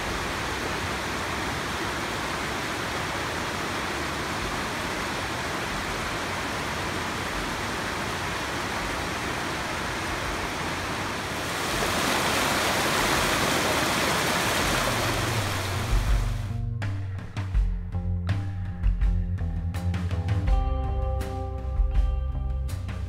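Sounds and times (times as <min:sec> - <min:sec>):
creek rushing over rocks: 0:00.0 - 0:16.5.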